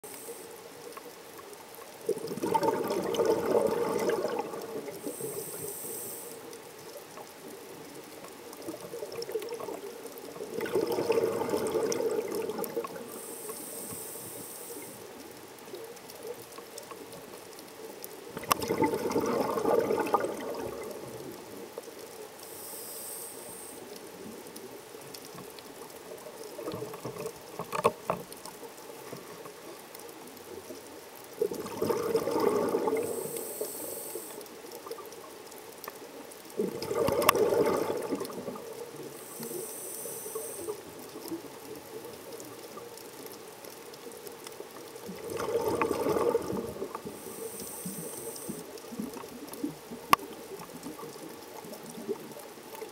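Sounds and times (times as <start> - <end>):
regulator inhale hiss: 0.0 - 0.6, 5.0 - 6.6, 13.0 - 15.1, 22.4 - 24.0, 33.0 - 34.5, 39.2 - 40.8, 47.0 - 48.7
exhaled bubbles gurgling: 1.9 - 52.9.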